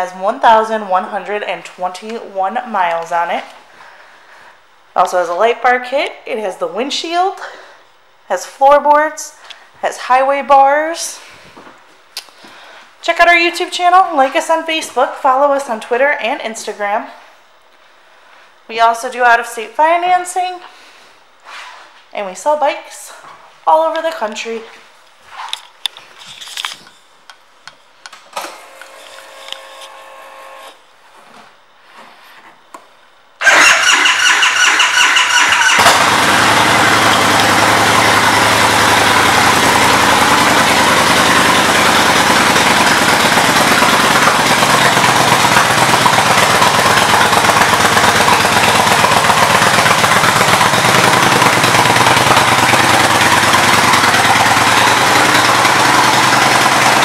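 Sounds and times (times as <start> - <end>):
motorcycle engine idling: 33.4 - 57.0
starter motor cranking: 33.4 - 57.0.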